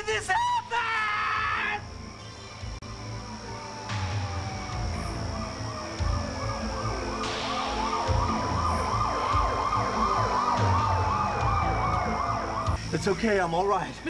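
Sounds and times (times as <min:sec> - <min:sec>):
siren slow wail: 0:01.3 - 0:13.2
siren yelping fast: 0:03.3 - 0:12.9.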